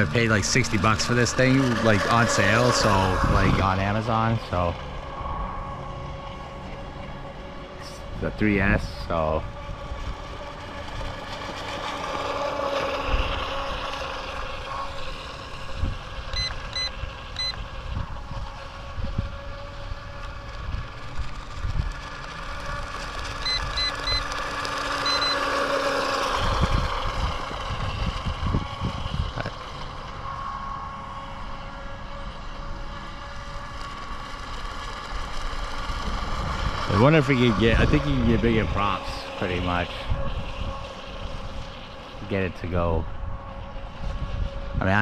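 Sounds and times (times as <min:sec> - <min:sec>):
wind rumble on microphone: 0:00.0 - 0:25.2, 0:26.1 - 0:45.0
electric motor whining: 0:00.0 - 0:45.0
short high beeps: 0:16.3 - 0:17.6, 0:23.4 - 0:24.3, 0:25.0 - 0:25.4.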